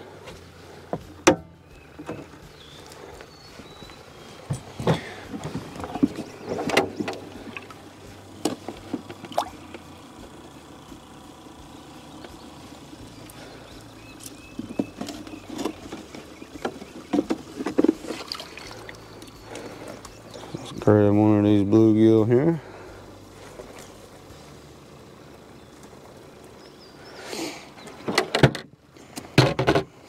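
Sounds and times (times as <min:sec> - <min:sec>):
water splashing: 0:09.2 - 0:09.8, 0:17.9 - 0:19.7.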